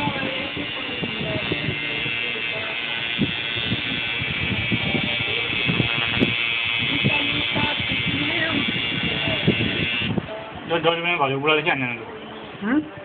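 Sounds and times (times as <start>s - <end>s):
tattoo machine buzzing: 0.0s - 10.2s.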